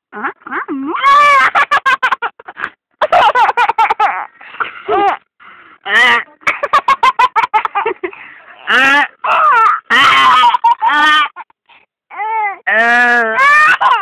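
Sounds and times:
child crying and squealing: 0.9 - 1.5, 13.2 - 14.0.

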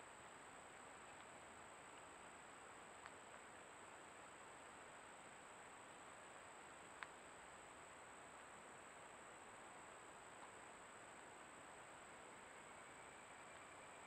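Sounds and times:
faint recording hiss: 0.0 - 14.0
faint click: 1.1 - 1.4, 3.0 - 3.4, 6.9 - 7.2.

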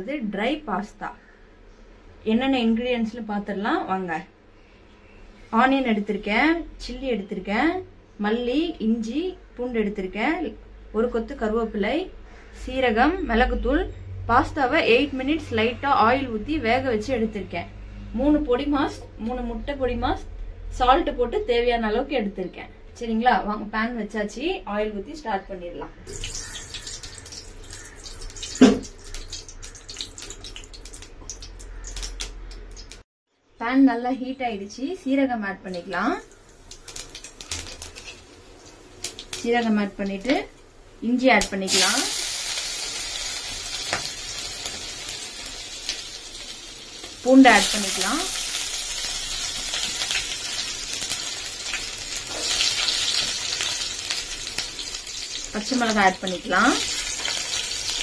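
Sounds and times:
spices sizzling in hot oil: 26.1 - 33.0, 35.7 - 58.0.

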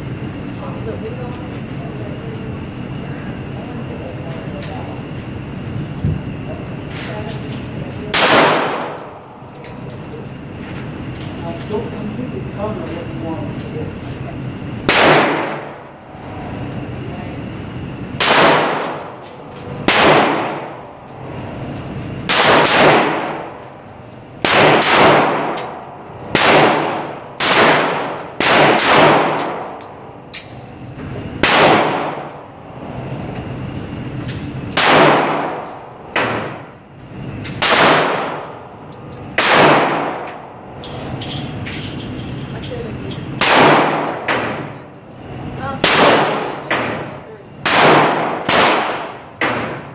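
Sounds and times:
handgun shots echoing indoors: 8.1 - 10.5, 14.9 - 15.8, 18.2 - 20.8, 22.3 - 30.1, 31.4 - 32.3, 34.7 - 36.6, 37.5 - 40.4, 43.4 - 44.6, 45.8 - 47.0, 47.6 - 49.8.

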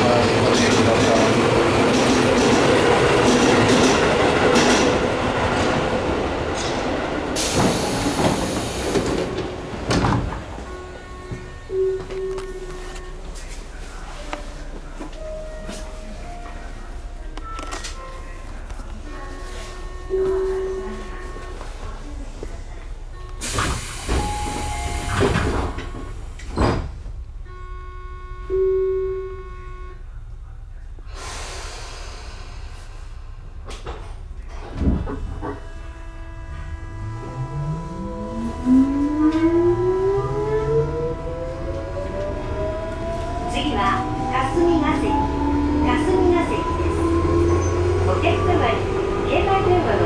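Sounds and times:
electric train slowing to a stop: 0.0 - 30.4, 31.1 - 50.0
knocks and clunks: 6.5 - 12.6, 33.6 - 35.6.

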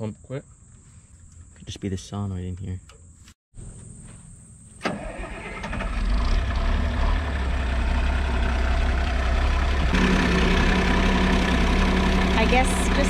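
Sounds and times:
diesel tractor engine idling: 4.9 - 13.0.

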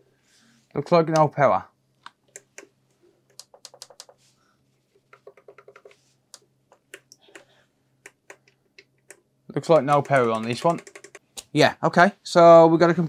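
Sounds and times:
typing on computer keyboard: 3.3 - 4.2, 5.1 - 6.0, 8.1 - 11.2.

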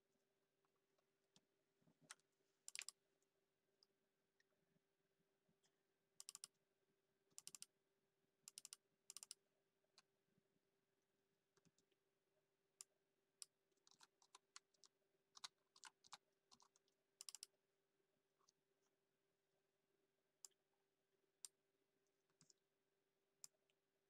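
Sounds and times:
mouse and keyboard clicks: 2.1 - 3.0, 6.2 - 6.5, 7.4 - 7.7, 8.5 - 9.4, 13.8 - 17.5.

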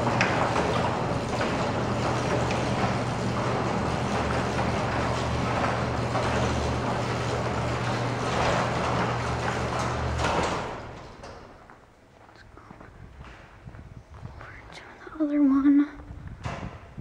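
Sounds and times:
mechanical rattle: 0.0 - 11.6
garage door motor humming: 0.0 - 12.2, 16.0 - 17.0.

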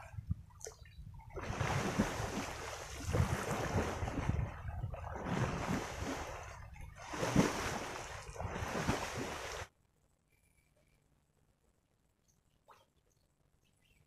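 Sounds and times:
water splashing and sloshing: 0.0 - 9.7.

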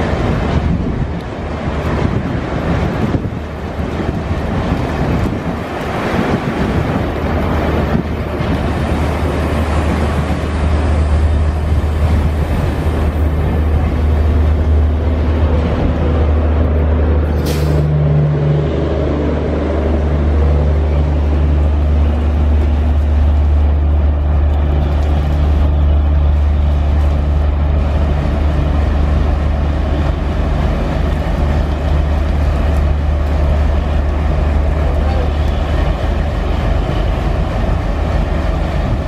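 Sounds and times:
diesel locomotive idling: 0.0 - 39.0
air release hiss: 17.3 - 17.9.

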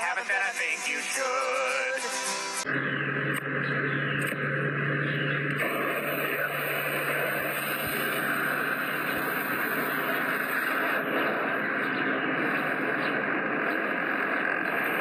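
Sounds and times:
low hum: 2.6 - 15.0
smoke firework hissing: 5.6 - 15.0.

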